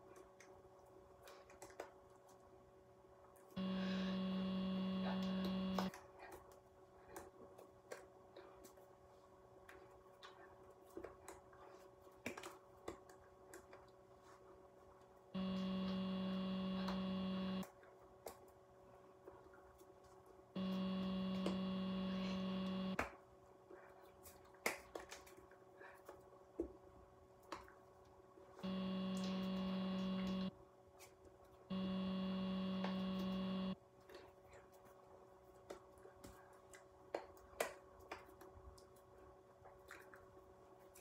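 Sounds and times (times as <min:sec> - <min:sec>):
steady low hum: 0:03.5 - 0:06.3, 0:15.3 - 0:17.6, 0:20.5 - 0:23.0, 0:28.6 - 0:30.5, 0:31.7 - 0:33.8.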